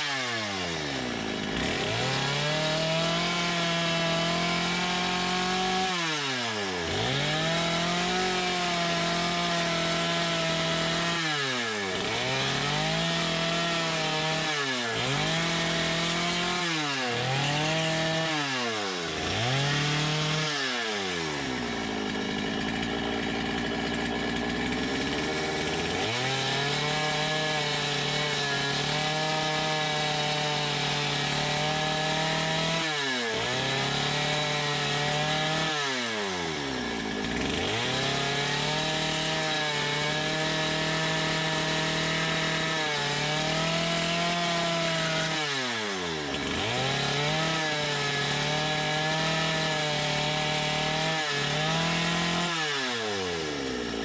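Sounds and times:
chainsaw cutting wood: 0.0 - 54.0.

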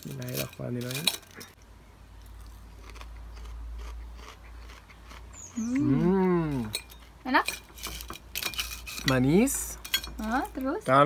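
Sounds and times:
person chewing crisp fritters: 2.2 - 7.2.

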